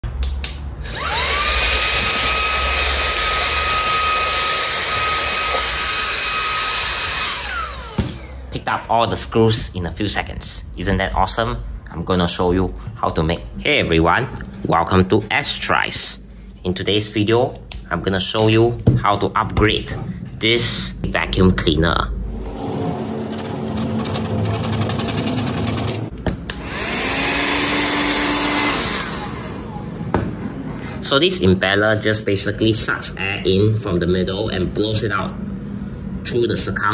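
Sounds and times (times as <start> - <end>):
handheld vacuum cleaner whine: 0.8 - 8.4, 22.4 - 30.2.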